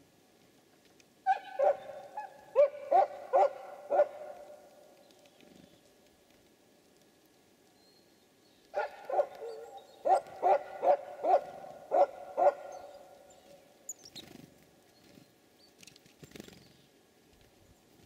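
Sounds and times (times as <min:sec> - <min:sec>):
animal calling: 0:01.3 - 0:04.8, 0:08.8 - 0:14.3.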